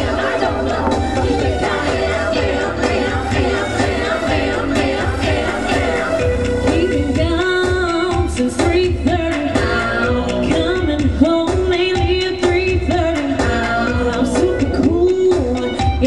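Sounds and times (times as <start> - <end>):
steady bass beat: 0.0 - 8.2
pop song with singing: 0.0 - 16.0.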